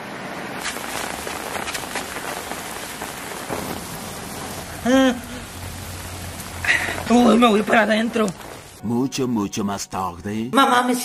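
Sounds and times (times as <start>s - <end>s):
steady rain falling: 0.0s - 8.8s.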